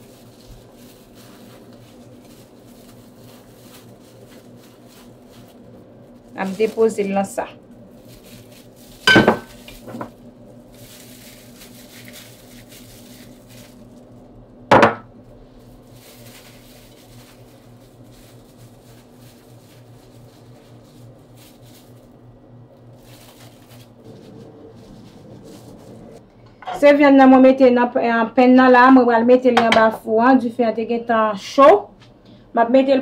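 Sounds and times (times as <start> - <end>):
crumb-coated chicken rustling: 0.0 - 14.6, 15.2 - 26.2
steady low hum: 0.0 - 33.0
dishware clinking: 9.1 - 9.5.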